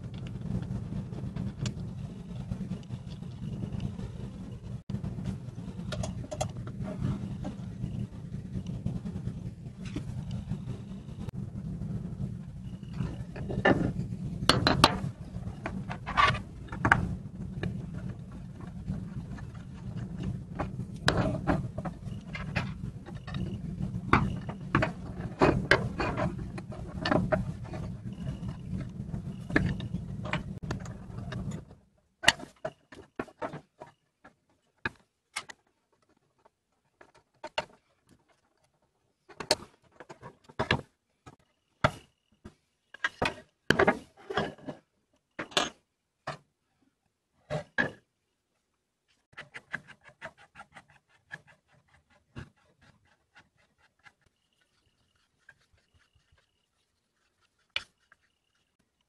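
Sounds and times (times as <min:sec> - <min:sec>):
steady low hum: 0:00.0 - 0:34.0
wooden plane parts clicking and knocking: 0:12.9 - 0:46.5, 0:49.3 - 0:59.0.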